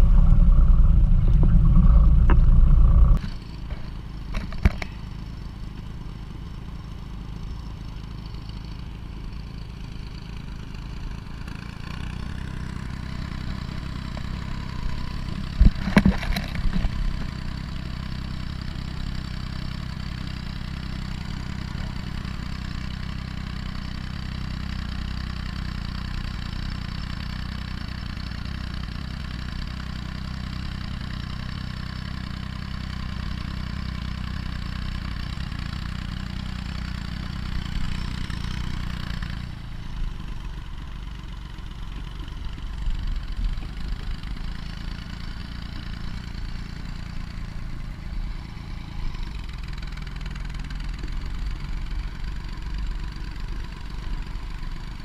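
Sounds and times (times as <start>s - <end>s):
tractor engine running: 0.0s - 55.0s
sharp knocks and clatters: 15.6s - 17.3s.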